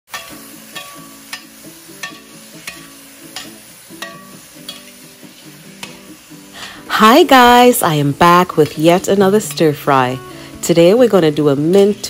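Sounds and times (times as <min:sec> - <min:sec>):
spatula stirring in wok: 0:00.1 - 0:06.1
light background music with beat: 0:00.1 - 0:12.0
tofu and vegetables sizzling: 0:00.1 - 0:12.0.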